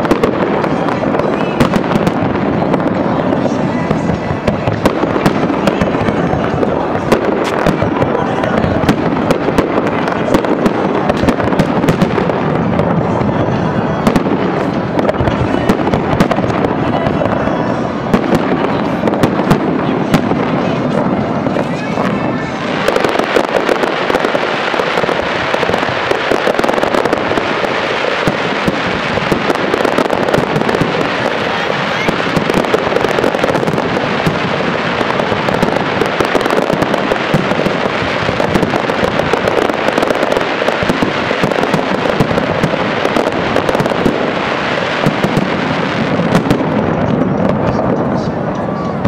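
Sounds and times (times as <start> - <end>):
fireworks bursting and crackling: 0.0 - 49.0.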